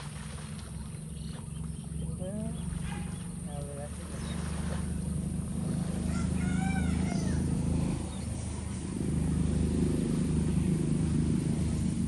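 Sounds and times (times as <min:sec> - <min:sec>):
low motor drone: 0:00.0 - 0:12.0
animal call: 0:06.0 - 0:07.6.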